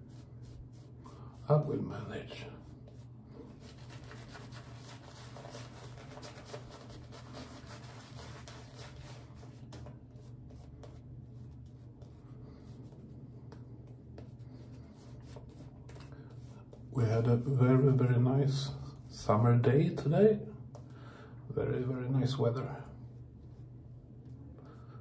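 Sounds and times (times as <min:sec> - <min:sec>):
shaving brush scrubbing lather: 0:01.8 - 0:13.1.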